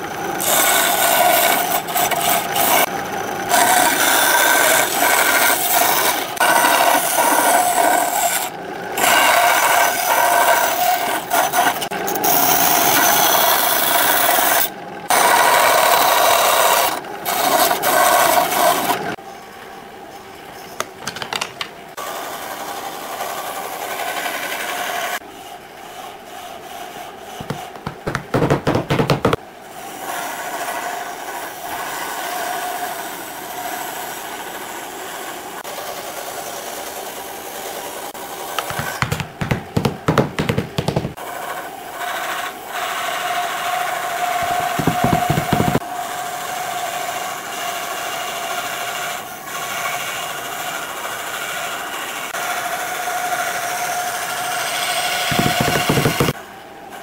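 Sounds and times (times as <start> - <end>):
rapid tool strokes on wood: 25.9 - 29.4, 38.5 - 43.1, 44.2 - 45.9, 55.1 - 56.4
tool rubbing or scraping wood: 26.6 - 29.4, 38.5 - 43.1, 44.2 - 45.8, 55.2 - 56.4.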